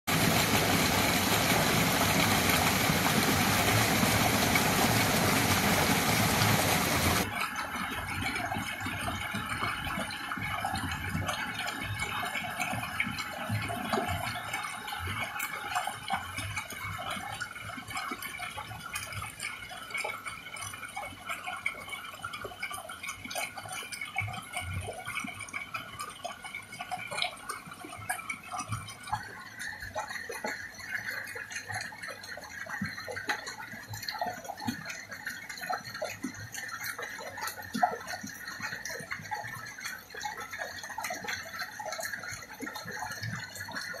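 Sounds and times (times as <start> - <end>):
steady outdoor hiss: 0.1 - 7.3
shallow water splashing and dripping: 0.1 - 44.0.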